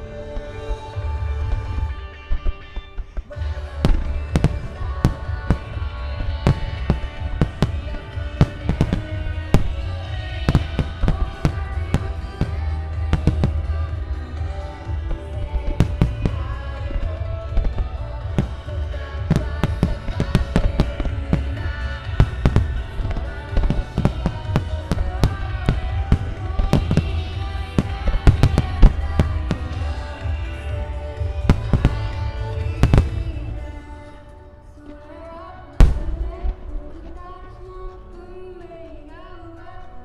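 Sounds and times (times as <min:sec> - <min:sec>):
music playing: 0:00.0 - 0:40.0
fireworks bursting: 0:00.3 - 0:34.3, 0:35.8 - 0:38.1
deep rumble: 0:03.3 - 0:34.2.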